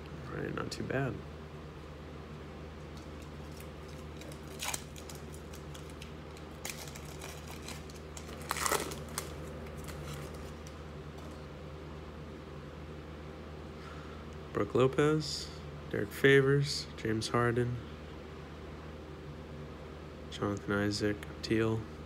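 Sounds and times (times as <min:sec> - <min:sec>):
low room hum: 0:00.0 - 0:22.0
foil wrapper crinkling: 0:02.9 - 0:11.4.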